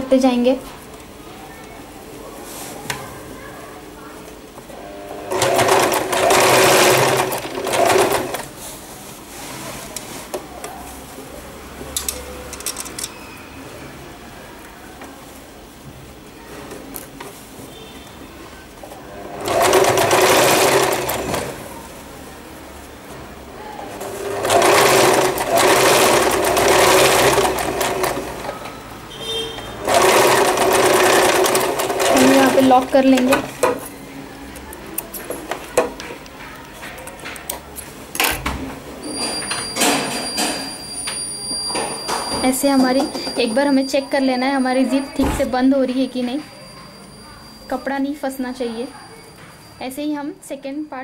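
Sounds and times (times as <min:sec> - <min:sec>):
electric sewing machine stitching: 0:04.8 - 0:08.5, 0:19.1 - 0:21.7, 0:24.0 - 0:28.6, 0:29.8 - 0:33.4.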